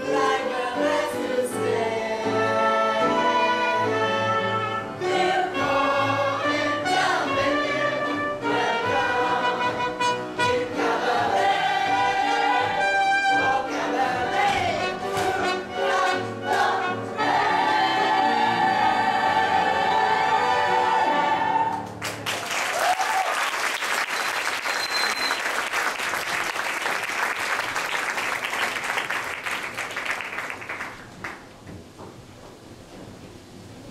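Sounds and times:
audience applause: 21.7s - 31.5s
whoops: 22.6s - 23.6s
whistle: 24.0s - 25.6s.

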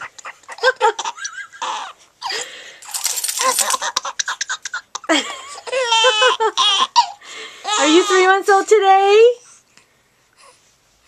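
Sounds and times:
baby giggling and laughing: 0.0s - 2.4s, 3.0s - 8.2s.

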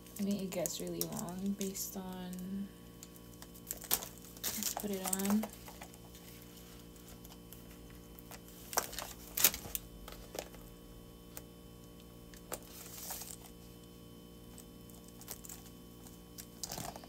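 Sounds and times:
faint steady hum: 0.0s - 17.0s
handling rustle: 0.2s - 10.7s, 12.4s - 13.8s.

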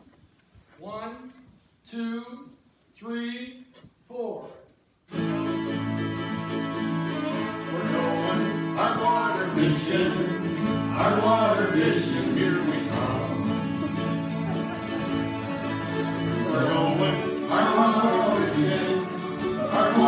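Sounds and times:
strummed acoustic guitar: 5.1s - 20.0s
group of voices singing: 7.0s - 14.0s, 15.8s - 20.0s.

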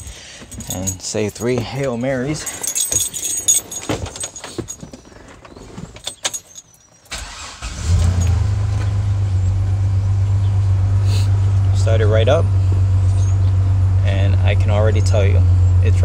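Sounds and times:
keys jingling: 0.0s - 8.9s, 13.1s - 13.4s
engine cranking: 5.4s - 9.6s
engine idling: 7.2s - 16.0s.

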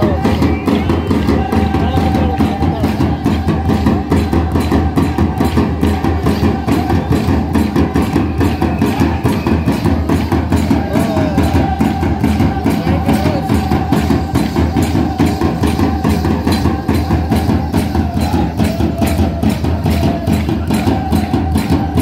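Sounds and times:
drumming: 0.0s - 22.0s
voices: 0.0s - 22.0s.

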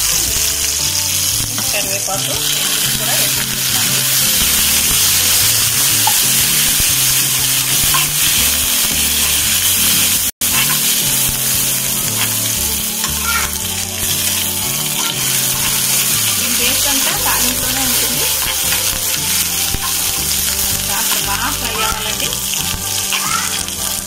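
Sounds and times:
spices sizzling in hot oil: 0.0s - 24.0s
steel ladle stirring: 0.4s - 24.0s.

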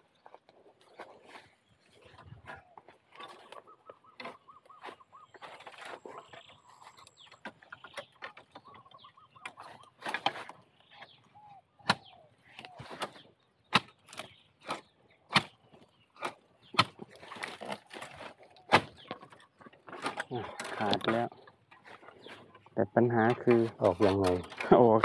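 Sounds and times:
rustling and scraping: 0.0s - 11.4s, 12.5s - 25.0s
spade chopping bamboo: 9.4s - 10.6s, 11.8s - 21.2s.

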